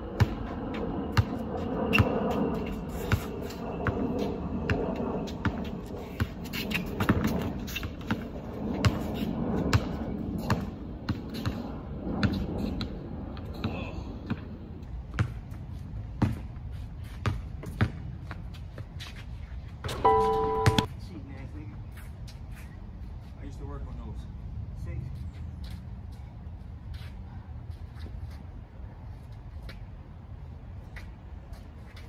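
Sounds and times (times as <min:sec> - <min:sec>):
basketball bouncing on hard court: 0:15.1 - 0:15.5.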